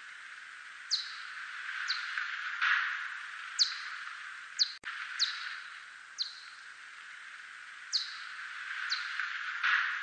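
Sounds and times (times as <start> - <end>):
steady background hiss: 0.0 - 10.0
bat echolocation chirps: 0.9 - 2.2, 3.6 - 6.7, 7.9 - 9.2.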